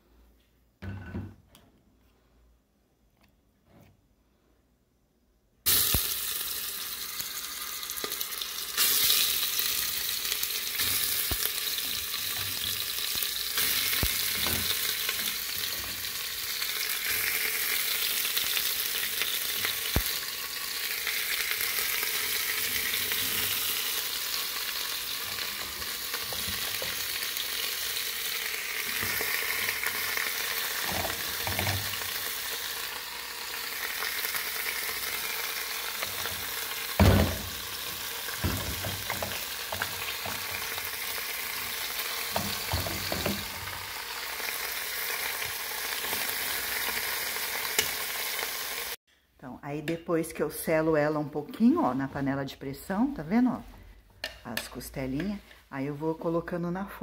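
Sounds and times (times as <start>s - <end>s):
meat sizzling in a pot: 5.7s - 49.0s.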